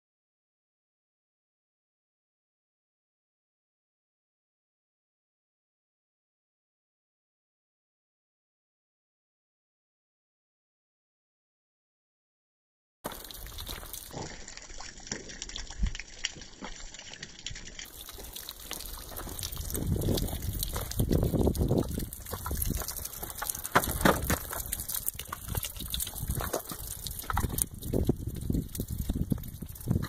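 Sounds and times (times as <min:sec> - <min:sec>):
water trickling: 0:13.0 - 0:30.0
footsteps on dry dirt: 0:17.9 - 0:28.4.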